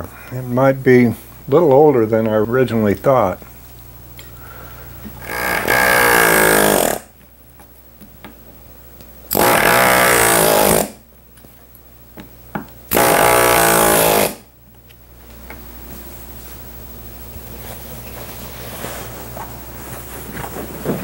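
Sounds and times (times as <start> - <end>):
pneumatic tack remover buzzing: 5.2 - 7.2, 9.3 - 11.0, 12.9 - 14.5.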